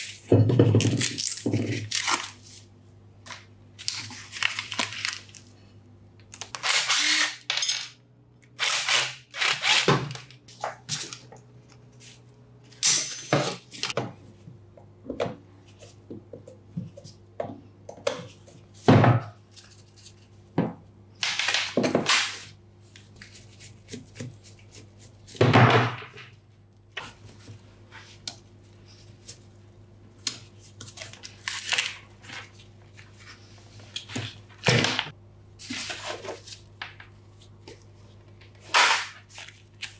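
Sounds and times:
metal tool parts scraping and clinking: 7.5 - 8.0, 12.7 - 13.6.

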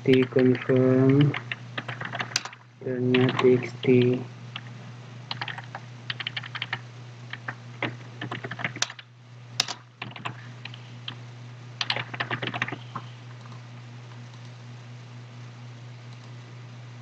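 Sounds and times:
computer keyboard typing: 0.0 - 4.7, 5.3 - 9.0, 9.6 - 11.2, 11.8 - 13.6
steady low hum: 0.0 - 17.0.

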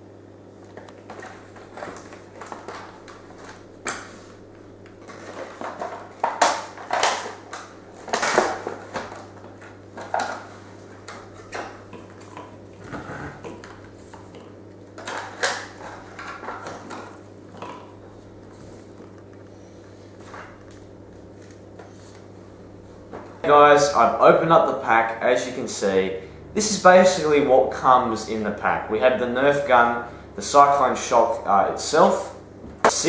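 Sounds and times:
cardboard and plastic packaging rustling: 0.7 - 23.5.

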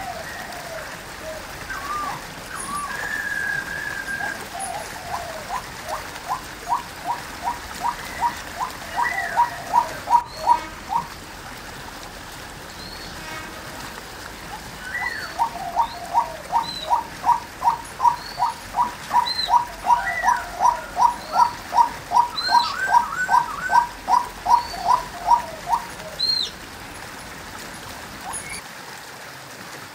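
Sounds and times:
waterhen calling: 0.0 - 28.6
small birds chirping: 1.7 - 11.1, 14.8 - 26.6.

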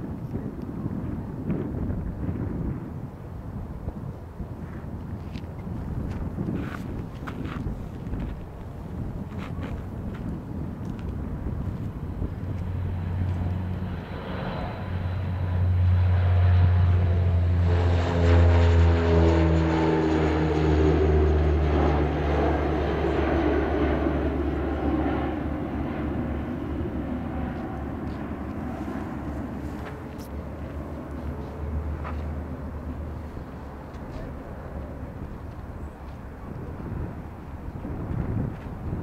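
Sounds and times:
turboprop plane taking off: 0.0 - 39.0.

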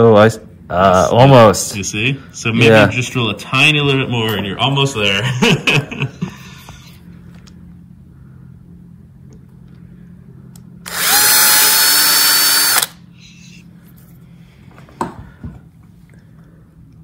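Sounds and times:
cordless drill drilling metal: 10.8 - 13.0.

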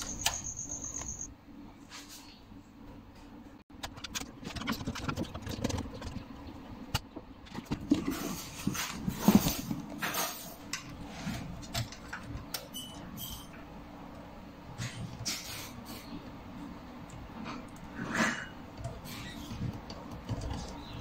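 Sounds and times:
computer parts clicking and rustling: 3.7 - 13.6, 18.6 - 21.0.

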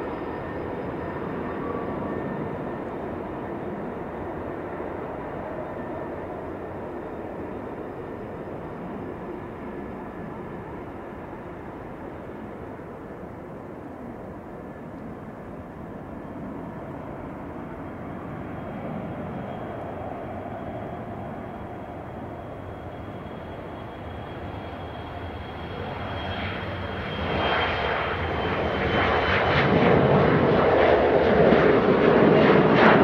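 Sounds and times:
jet engines with high whine: 0.0 - 33.0.

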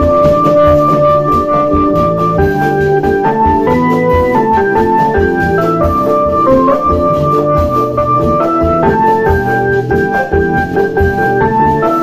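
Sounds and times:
organ melody over quick beat: 0.0 - 12.0.

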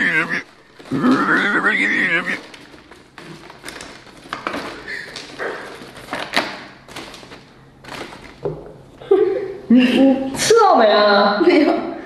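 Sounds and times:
plastic pieces clicking and rattling: 0.4 - 8.5.

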